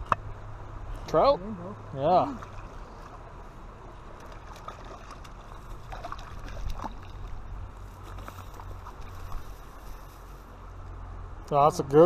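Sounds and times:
river water rushing: 2.0s - 10.8s
wind rumble on microphone: 2.4s - 11.0s.

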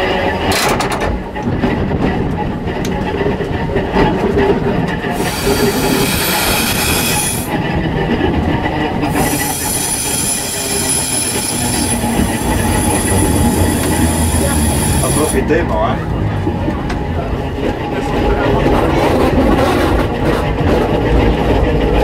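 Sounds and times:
tram wheels rumbling on rail: 0.0s - 22.0s
high-pitched squealing whine: 5.0s - 16.1s.

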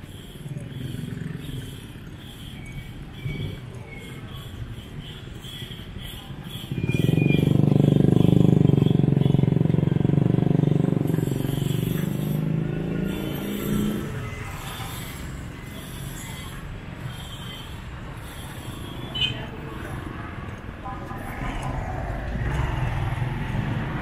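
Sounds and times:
background traffic: 0.0s - 24.0s
motor vehicle passing close by: 21.3s - 24.0s.

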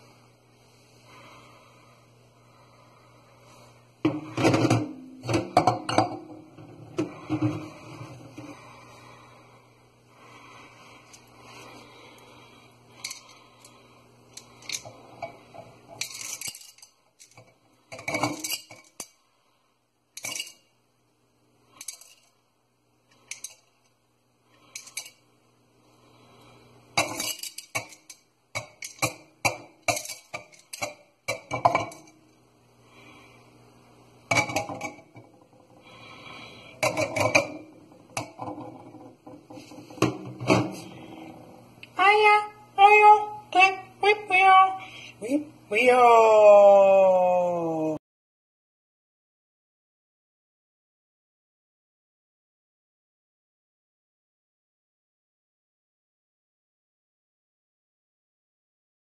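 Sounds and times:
cups knocking against steel sink: 4.1s - 7.6s, 36.8s - 40.8s
candies rattling in tumblers: 16.0s - 17.4s.

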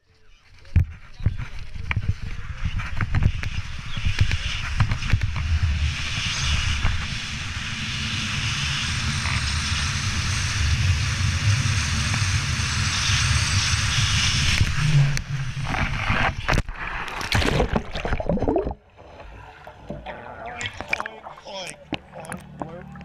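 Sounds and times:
wind on microphone: 0.5s - 18.8s
water splashing and sloshing: 15.6s - 23.0s.

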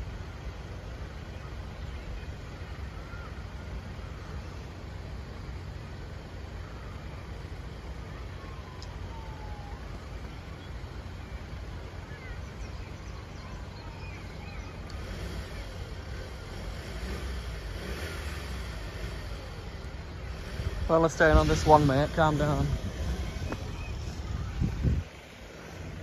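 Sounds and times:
rumble of road vehicles: 0.0s - 26.0s
faint high chirps: 5.6s - 26.0s.

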